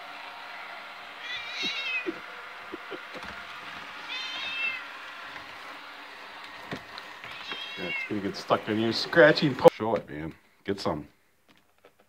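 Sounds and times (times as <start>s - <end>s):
robot vacuum motor humming: 0.0s - 9.7s
cat meowing: 1.2s - 3.1s, 4.1s - 4.9s, 7.2s - 8.1s.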